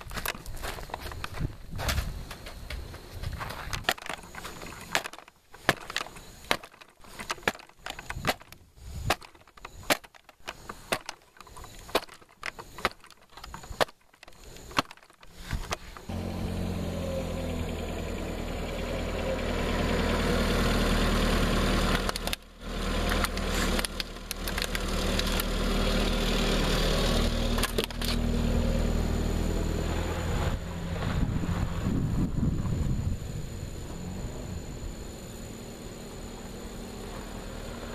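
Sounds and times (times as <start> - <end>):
vehicle engine idling: 16.0 - 37.9.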